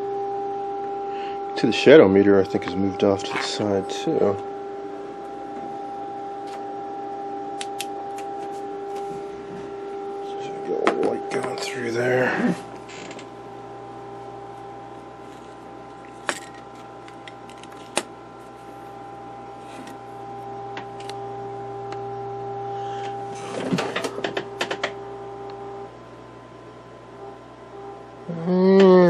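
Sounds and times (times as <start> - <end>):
steady test tone from radio: 0.1 - 7.6, 8.5 - 15.7
sharp clicks and knocks: 23.7 - 25.0.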